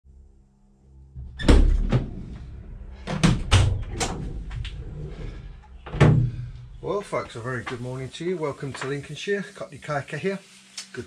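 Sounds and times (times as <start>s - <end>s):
van doors knocking and clunking: 5.8s - 6.6s.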